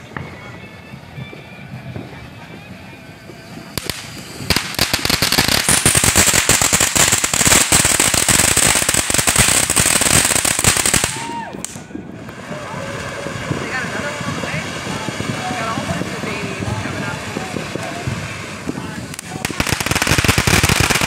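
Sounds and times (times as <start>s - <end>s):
firework crackling pops: 0.0s - 21.0s.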